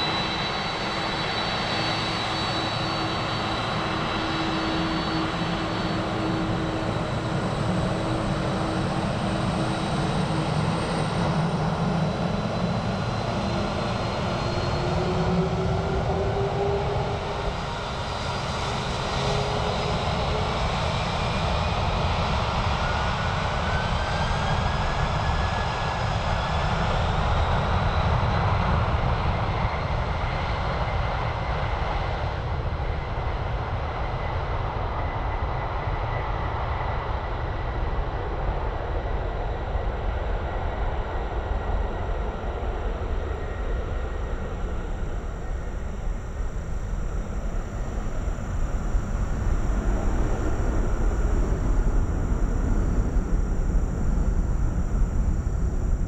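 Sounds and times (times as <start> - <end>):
jet engines running at high power: 0.0 - 56.0.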